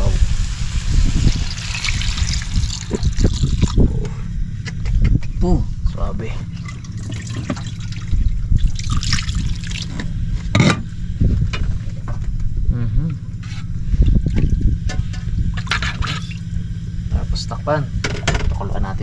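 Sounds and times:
steady low hum: 0.0s - 19.0s
liquid pouring and splashing: 0.5s - 3.9s, 6.6s - 10.1s.

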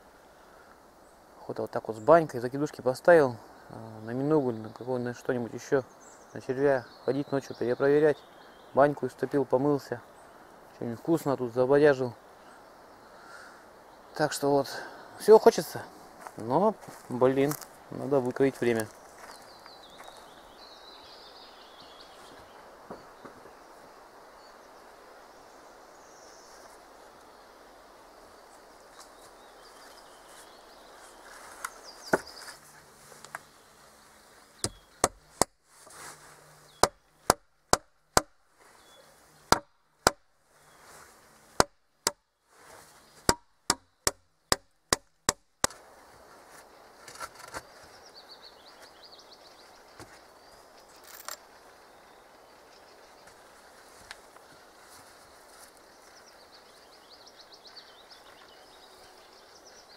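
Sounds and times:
tool striking wood: 34.6s - 35.6s, 36.8s - 38.4s, 39.5s - 40.2s, 41.6s - 42.2s, 43.3s - 45.8s.

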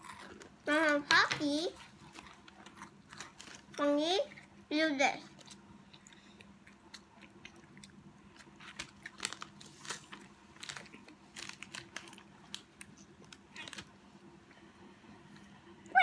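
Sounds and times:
biscuit sticks crunching: 1.8s - 3.8s, 5.3s - 13.9s.

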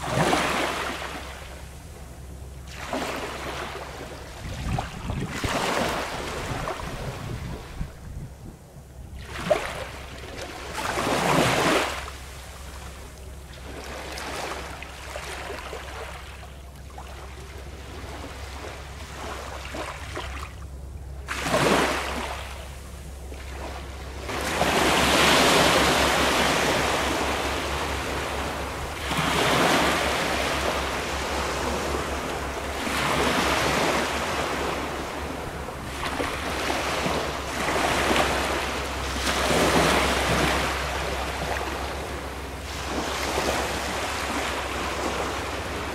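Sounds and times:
small waves washing on shore: 0.0s - 45.9s
wind rumble on microphone: 2.1s - 12.0s, 21.5s - 45.9s.

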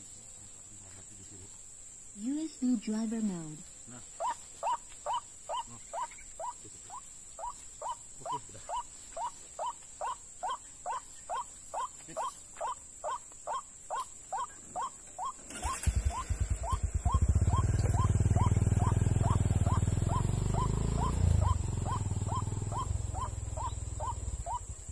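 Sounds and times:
waterhen calling: 4.2s - 24.9s
motorcycle engine running: 15.4s - 24.9s.

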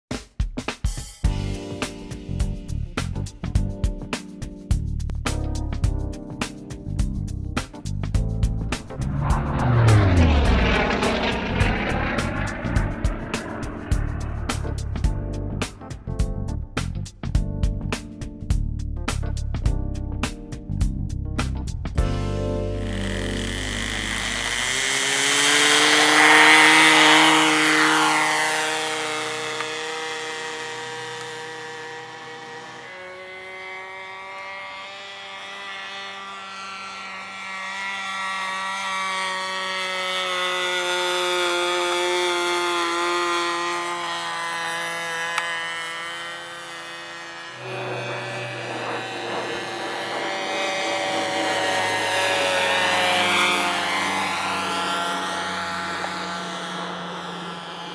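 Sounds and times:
model airplane engine buzzing: 6.4s - 16.0s, 21.9s - 57.9s.

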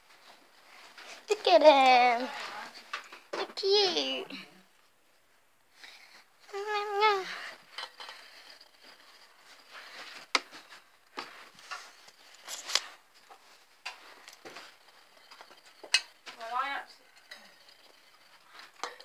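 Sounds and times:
soft rustling: 4.8s - 18.8s.

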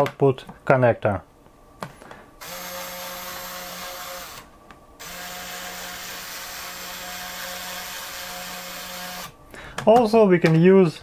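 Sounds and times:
small electric motor whirring: 2.4s - 9.4s.

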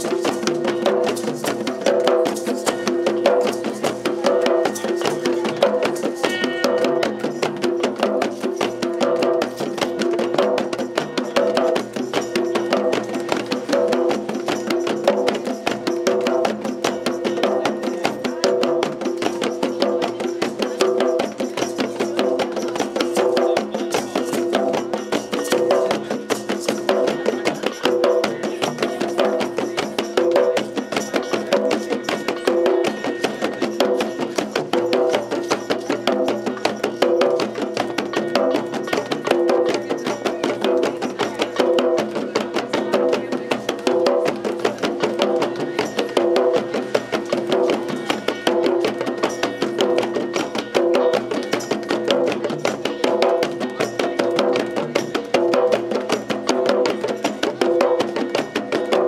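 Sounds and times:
hand drums playing: 0.0s - 59.0s
percussion: 0.0s - 59.0s.

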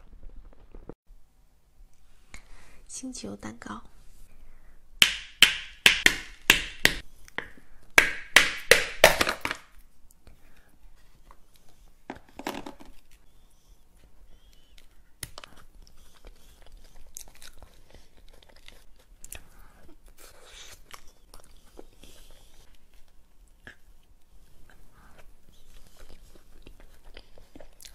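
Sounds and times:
wooden mallet tapping cake shell: 5.0s - 9.3s.

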